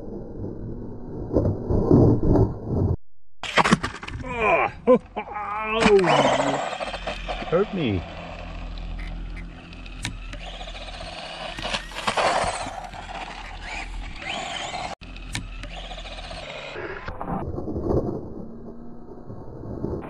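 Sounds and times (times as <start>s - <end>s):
tyre noise on asphalt: 3.4s - 16.8s
electric motor whining: 5.6s - 17.2s.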